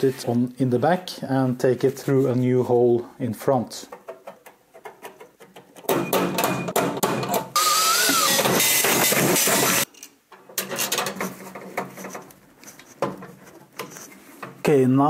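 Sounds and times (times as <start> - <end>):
parts clicking and tapping: 3.9 - 14.7
cordless drill whining: 7.6 - 9.9.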